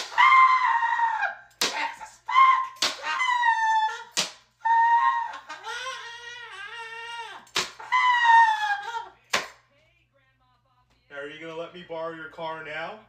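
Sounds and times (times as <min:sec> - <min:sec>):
high-pitched scream: 0:00.0 - 0:01.4, 0:02.3 - 0:05.4.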